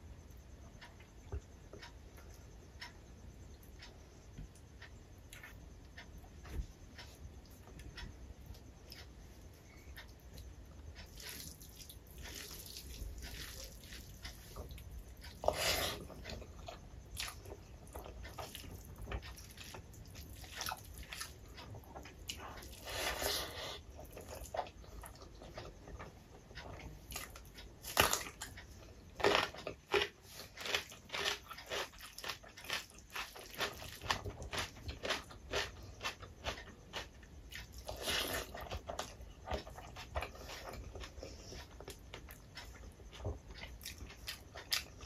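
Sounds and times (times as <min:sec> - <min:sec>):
chewing: 0:06.9 - 0:45.0
fingers mixing rice: 0:10.4 - 0:26.0.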